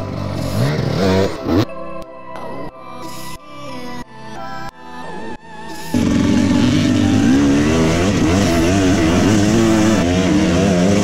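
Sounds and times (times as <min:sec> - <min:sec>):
dirt bike engine revving: 0:00.0 - 0:01.6, 0:05.9 - 0:11.0.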